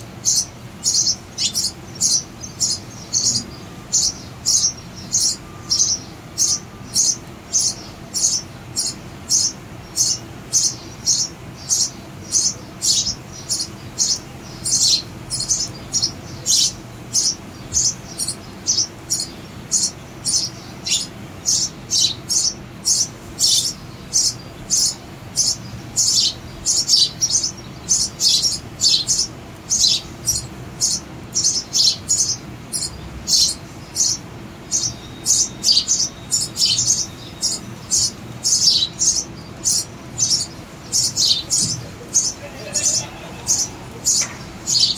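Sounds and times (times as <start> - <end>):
sparrow chicks chirping: 0.0 - 44.9.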